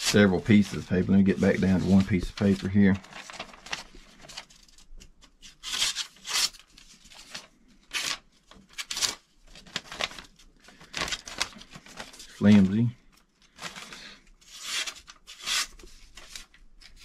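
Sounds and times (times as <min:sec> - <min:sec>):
paper rustling: 0:00.0 - 0:17.0
knife slicing paper: 0:14.5 - 0:17.0.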